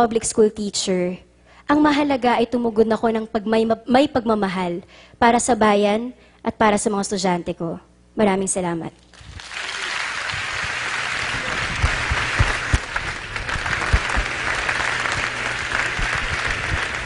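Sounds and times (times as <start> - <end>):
audience applauding: 9.2 - 17.0.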